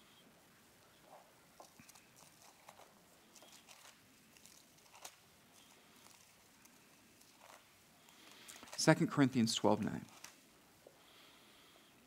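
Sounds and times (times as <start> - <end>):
pages being turned: 1.6 - 7.7, 8.3 - 8.9, 9.9 - 10.4.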